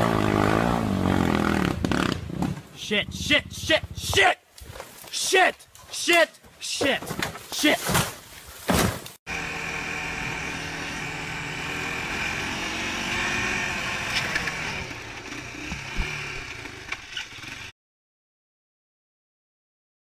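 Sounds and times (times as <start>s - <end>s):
atv engine running: 0.0s - 4.1s, 9.3s - 17.7s.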